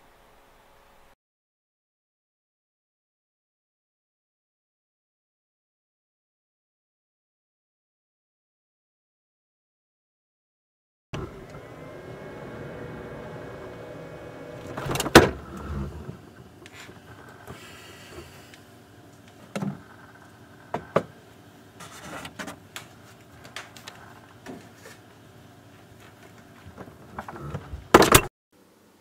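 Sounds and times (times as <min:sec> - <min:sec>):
refrigerator door shutting thud: 0:14.7 - 0:15.9
refrigerator door thumping open: 0:14.8 - 0:15.5.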